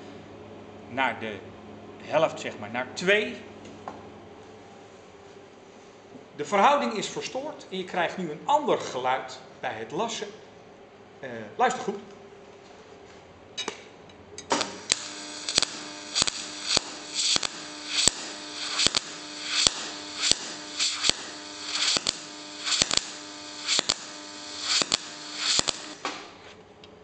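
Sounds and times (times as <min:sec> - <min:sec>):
welding arc humming and popping: 0:14.4 - 0:26.6.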